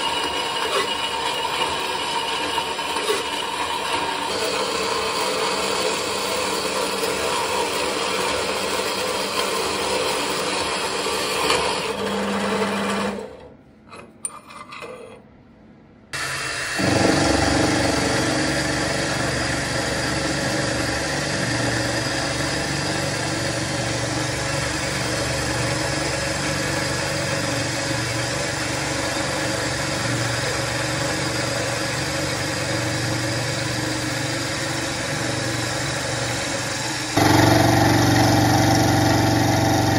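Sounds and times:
band saw cutting metal: 0.0s - 13.2s, 16.2s - 39.9s
milling machine motor hum: 16.2s - 39.9s.

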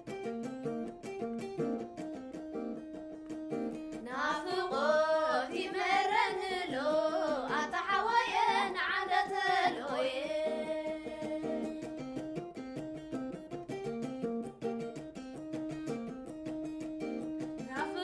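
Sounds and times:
plucked lyre: 0.0s - 18.0s
women singing: 4.0s - 11.9s, 17.7s - 18.0s.

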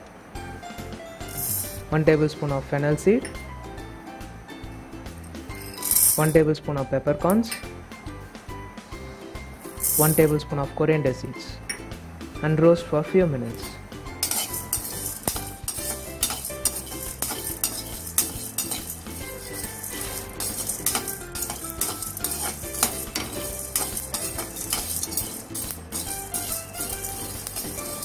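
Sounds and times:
metal ladle scraping a pan: 13.6s - 28.0s.

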